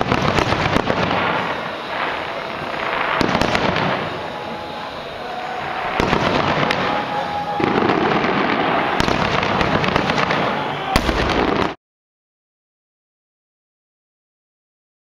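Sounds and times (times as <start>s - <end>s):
fireworks popping and banging: 0.0s - 11.8s.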